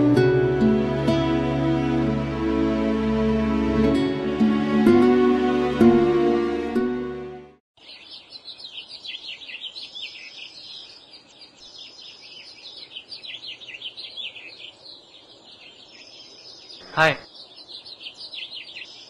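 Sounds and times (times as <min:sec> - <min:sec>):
small birds chirping: 0:07.8 - 0:19.0.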